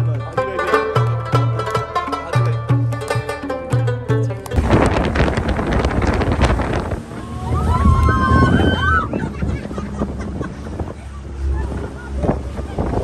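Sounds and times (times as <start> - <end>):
speedboat engine rumble: 4.3 - 13.0
wind buffeting microphone: 4.5 - 13.0.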